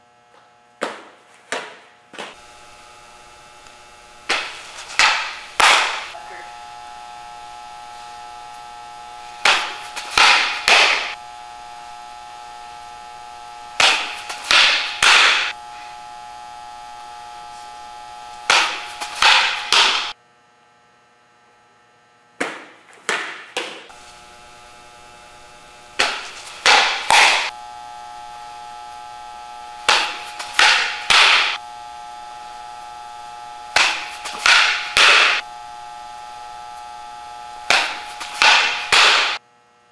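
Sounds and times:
electrical hum: 0.0s - 39.9s
ball smacking into mitt: 9.4s - 11.1s, 33.8s - 35.4s, 37.7s - 39.3s.

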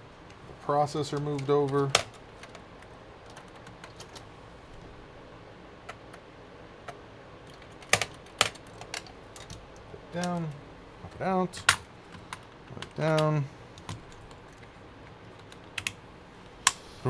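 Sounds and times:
clicks and taps handling computer parts: 1.1s - 2.6s, 6.8s - 14.7s.

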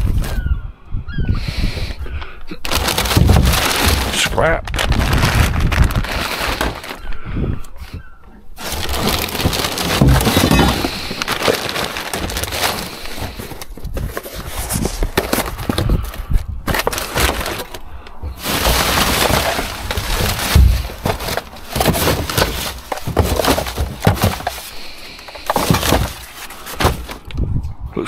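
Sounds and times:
scrap parts clattering in a bin: 2.7s - 4.4s, 8.6s - 15.8s, 16.7s - 17.8s, 18.4s - 27.2s
heavy thump: 8.9s - 11.2s.

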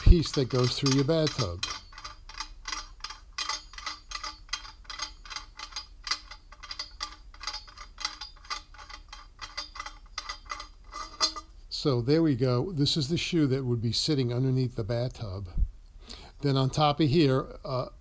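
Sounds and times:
drain strainer threads clicking: 0.0s - 11.5s.

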